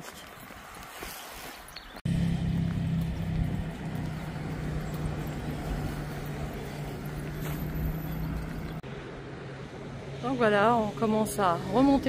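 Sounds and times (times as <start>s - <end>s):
low engine hum: 2.1s - 10.2s.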